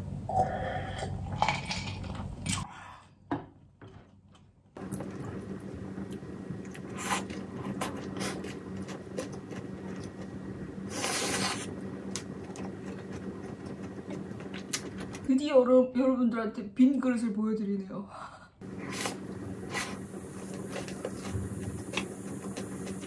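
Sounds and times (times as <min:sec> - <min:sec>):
steady low hum: 0:04.8 - 0:15.3, 0:18.6 - 0:23.0.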